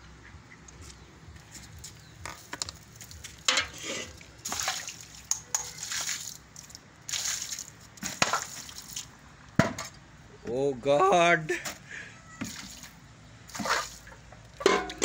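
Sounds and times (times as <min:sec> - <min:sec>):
water splashing over tin can: 0:02.3 - 0:09.1, 0:12.4 - 0:15.0.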